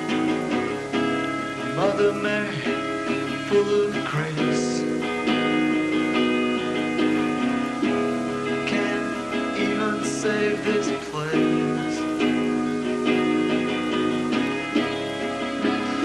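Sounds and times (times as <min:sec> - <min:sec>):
live band guitar music: 0:00.0 - 0:16.0.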